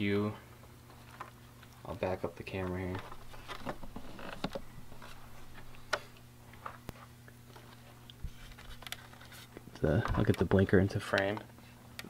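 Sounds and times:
steady low hum: 0.0 - 12.0
plastic parts clicking and rustling: 2.6 - 6.9, 7.5 - 11.5.

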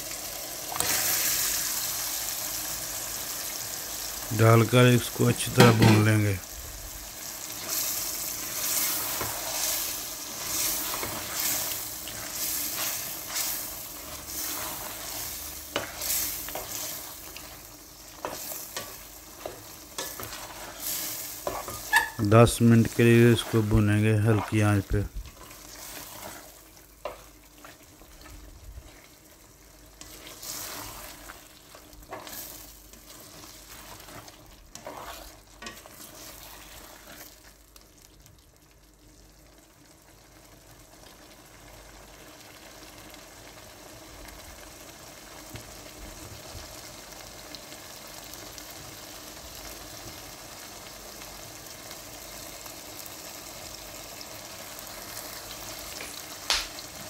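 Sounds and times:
food sizzling: 0.0 - 57.0
spoon scraping a pot: 18.2 - 22.3, 33.7 - 37.2.

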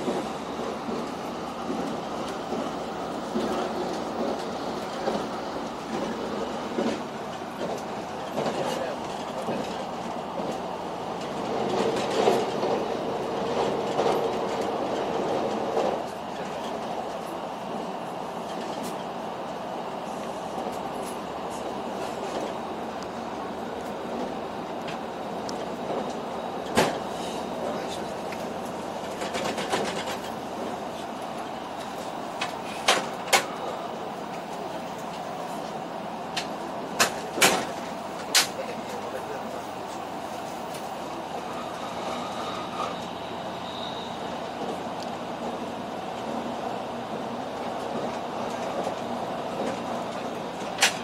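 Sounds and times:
train running noise: 0.0 - 51.0
wheel clicks over rails: 27.6 - 30.7, 47.7 - 51.0.

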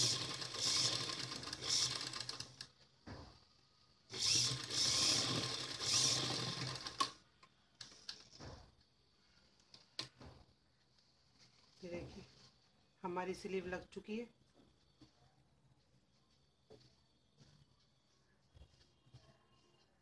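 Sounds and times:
sewing machine stitching: 0.0 - 2.8, 4.1 - 7.2.

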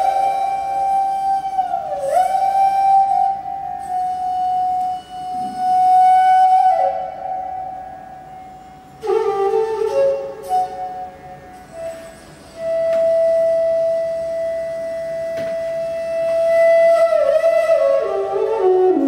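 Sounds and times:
bamboo flute playing held notes: 0.0 - 19.0.

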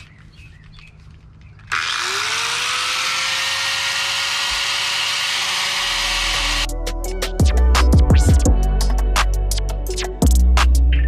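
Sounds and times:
angle grinder grinding steel: 1.7 - 6.7.

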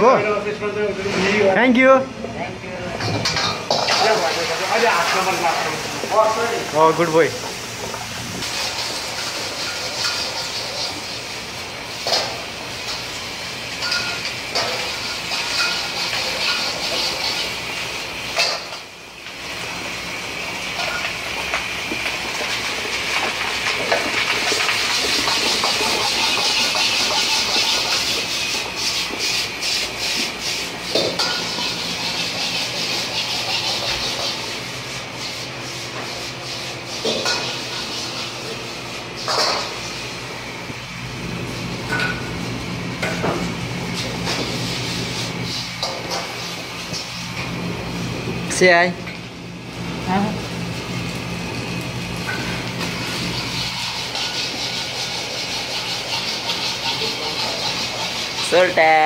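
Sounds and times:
noodles sizzling in a wok: 3.5 - 35.6, 50.5 - 59.0.

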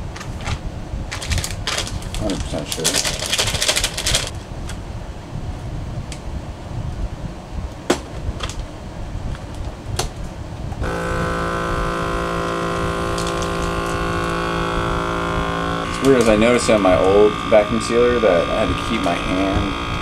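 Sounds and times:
bag rustling: 0.0 - 4.4
vacuum pump humming: 0.0 - 5.1, 7.8 - 20.0.

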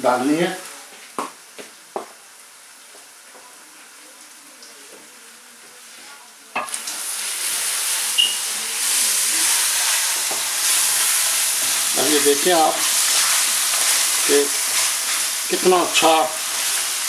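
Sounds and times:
meat sizzling in oil: 6.6 - 17.0.

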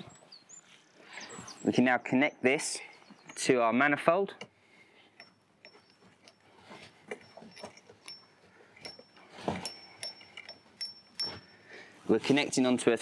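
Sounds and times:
metallic clicks of hose fitting: 5.2 - 11.5.

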